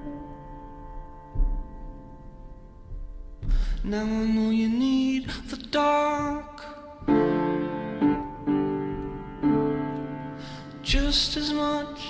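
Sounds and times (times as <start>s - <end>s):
piano chords ringing: 0.0s - 12.0s.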